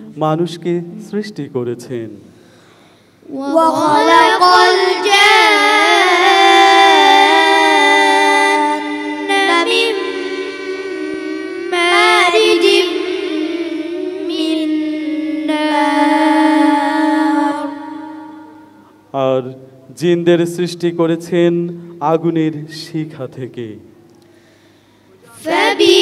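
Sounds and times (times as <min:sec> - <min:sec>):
boys chanting recitation: 0:03.2 - 0:18.6.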